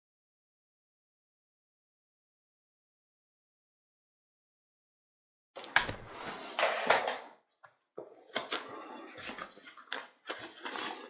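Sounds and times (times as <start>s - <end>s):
cardboard box scraping and rubbing: 5.9s - 7.0s.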